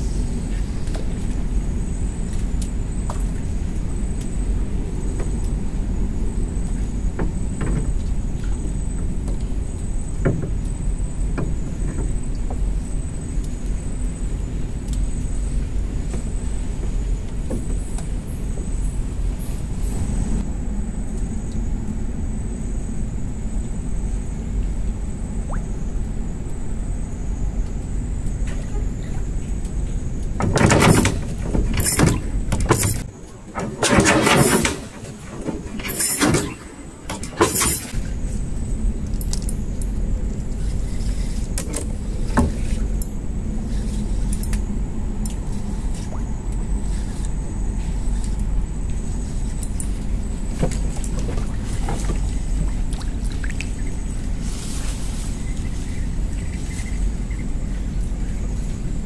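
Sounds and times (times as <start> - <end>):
low rumble: 0.0 - 30.4, 37.9 - 59.0
scraping and rustling on boat: 28.2 - 59.0.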